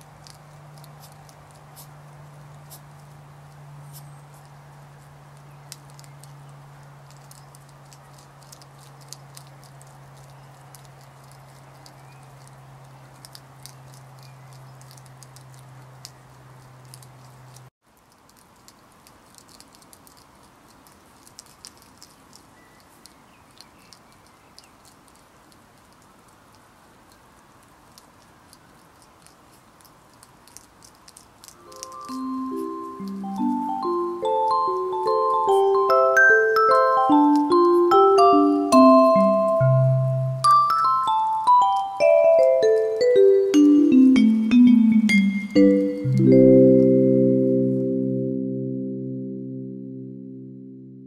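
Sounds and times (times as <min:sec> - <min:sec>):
hedgehogs chewing dry food: 0:00.0 - 0:45.9.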